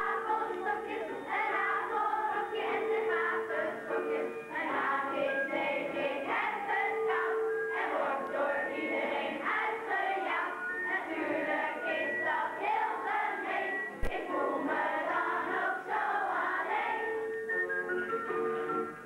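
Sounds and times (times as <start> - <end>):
children singing: 0.0 - 17.2.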